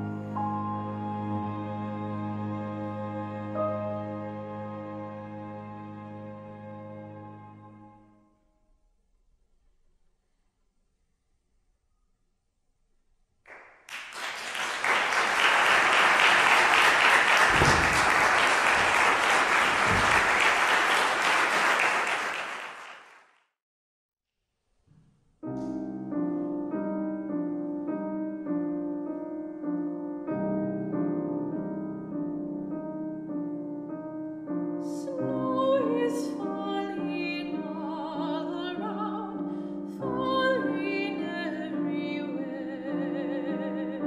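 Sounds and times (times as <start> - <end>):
grand piano playing: 0.0 - 8.0, 14.8 - 21.9, 25.4 - 44.0
audience applauding: 13.5 - 23.3.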